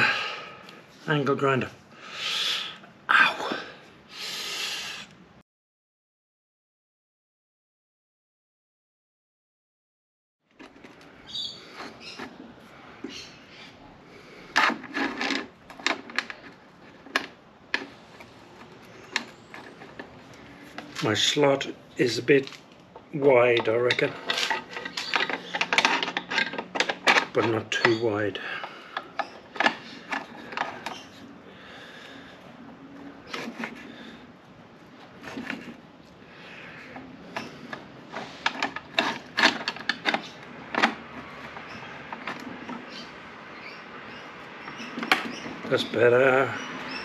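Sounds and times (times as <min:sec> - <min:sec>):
metal clicks and clunks: 0:14.5 - 0:20.2, 0:22.4 - 0:31.0, 0:36.9 - 0:43.0, 0:44.6 - 0:46.0.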